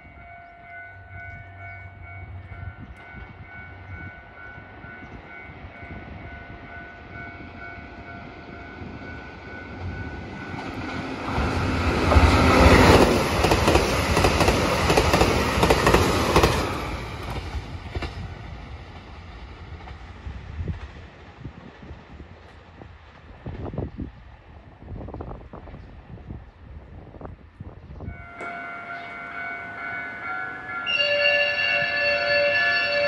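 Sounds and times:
train wheels rumbling and clattering: 0.0 - 27.3.

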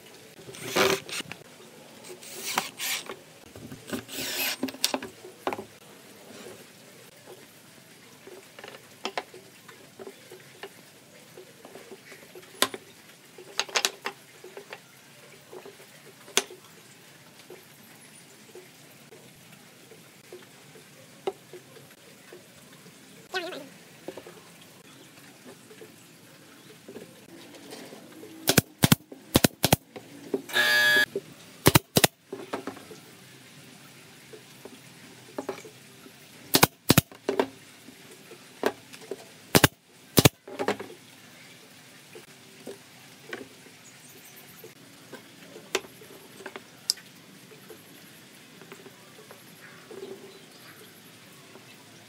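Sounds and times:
knocks of wooden pieces: 28.5 - 29.8, 36.5 - 37.0, 39.6 - 40.8
nail gun firing into wood: 28.5 - 29.8, 31.7 - 32.1, 36.5 - 37.1, 39.6 - 40.3.

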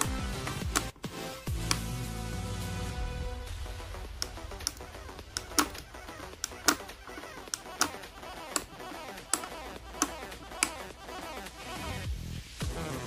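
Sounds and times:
sharp metallic clicks: 0.0 - 1.0, 4.2 - 11.6.

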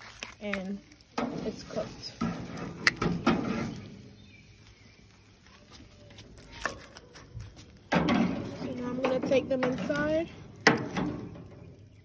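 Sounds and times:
metal tongs clicking on grill: 2.2 - 3.8.

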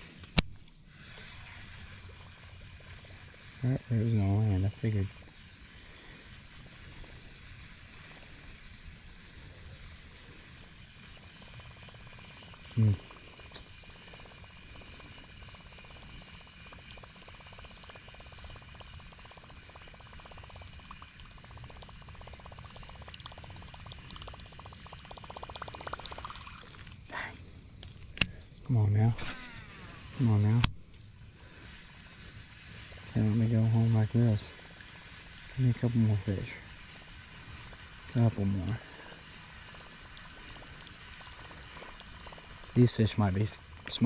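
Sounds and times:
chorus of insects: 0.0 - 44.0
faint rapid ticking: 10.2 - 27.2.

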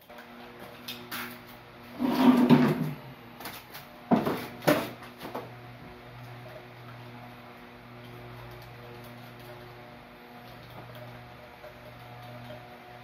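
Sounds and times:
steady low hum: 0.1 - 13.0.

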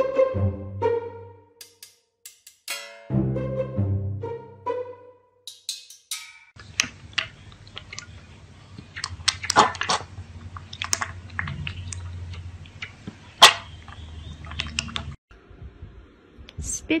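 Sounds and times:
piglet slurping from metal bowl: 6.6 - 15.2
low steady hum: 6.6 - 17.0.

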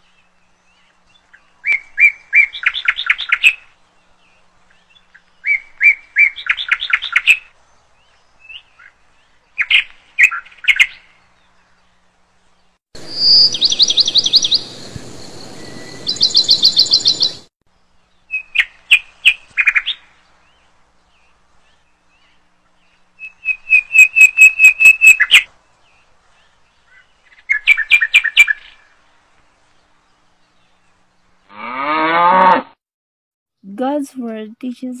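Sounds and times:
bird chirps: 12.6 - 28.9
bird trills: 13.0 - 17.5, 23.2 - 25.5.

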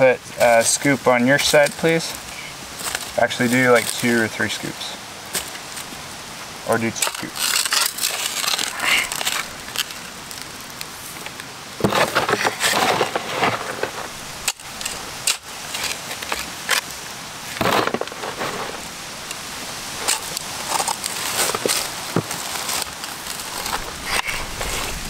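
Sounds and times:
shovel scraping soil: 6.7 - 10.4, 11.8 - 19.4, 20.0 - 25.0
dirt falling: 6.7 - 25.0.

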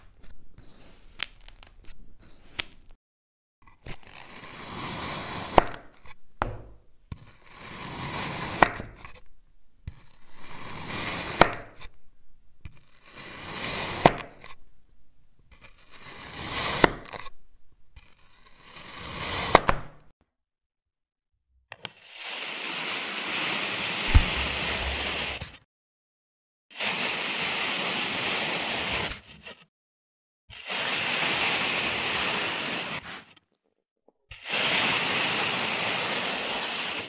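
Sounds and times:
blade tapping surface: 24.1 - 25.4
knife slicing through packed sand: 24.1 - 25.6, 32.7 - 33.3.

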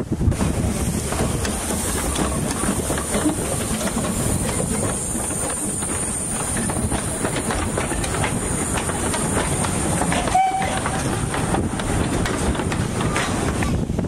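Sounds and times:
clatter of train wheels: 0.0 - 14.0
steam locomotive running past: 0.0 - 14.0
steam whistle toot: 10.2 - 10.8.

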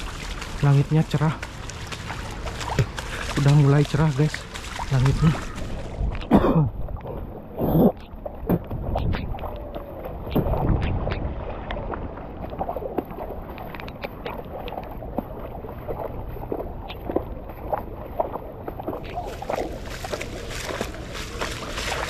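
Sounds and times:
footsteps splashing through water: 0.0 - 22.0
wind on microphone: 4.7 - 13.3.

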